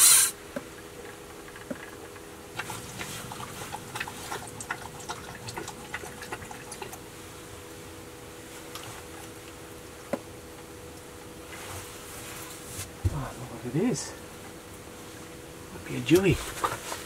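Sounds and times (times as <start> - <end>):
fishing reel clicking: 0.0 - 0.4.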